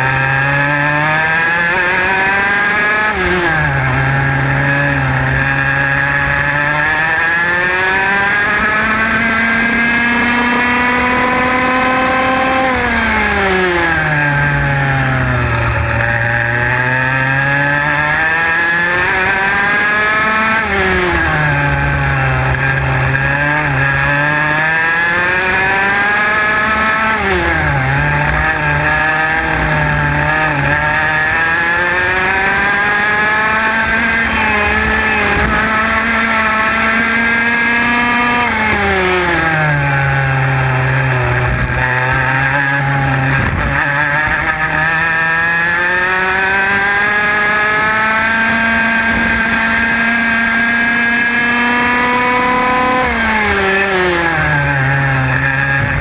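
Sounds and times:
kart engine at racing speed: 0.0 - 56.0.

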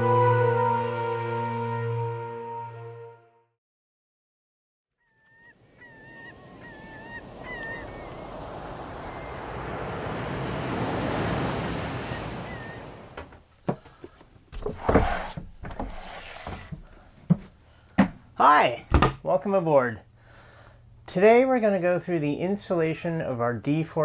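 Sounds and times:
honking bird calls: 5.0 - 9.6, 11.4 - 13.2
surf rushing: 5.6 - 13.3
wooden hatch knocks and thunks: 13.2 - 18.2, 18.9 - 19.2.

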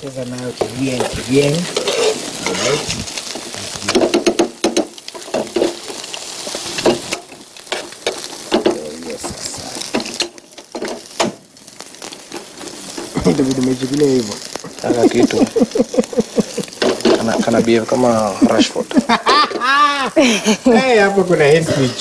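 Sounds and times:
vegetables sizzling in a frying pan: 0.0 - 22.0
spoon scraping a pan: 0.5 - 11.1, 16.8 - 17.5.

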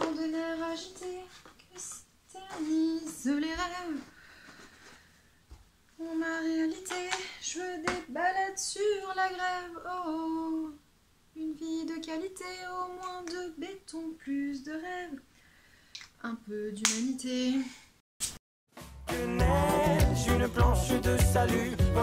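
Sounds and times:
woman singing wordless melody: 0.0 - 4.1, 6.0 - 15.3, 16.2 - 17.7.

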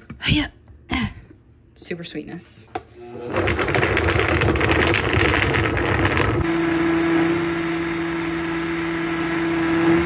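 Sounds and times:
blender motor churning and humming: 3.0 - 10.0.

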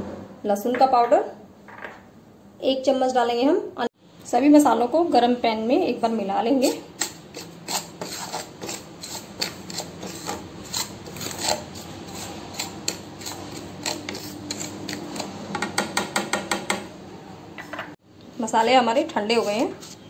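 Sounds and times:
wooden spatula scraping pan: 7.0 - 15.5, 19.2 - 20.0.

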